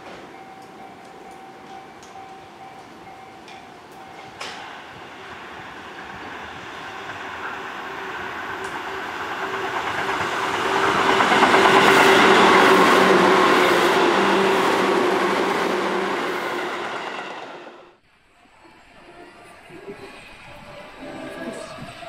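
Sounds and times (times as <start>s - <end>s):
electric train passing: 0.0s - 22.0s.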